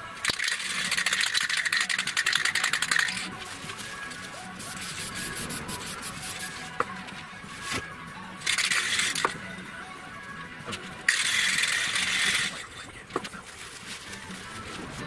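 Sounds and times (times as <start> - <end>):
aerosol spray can hissing: 4.6 - 6.5.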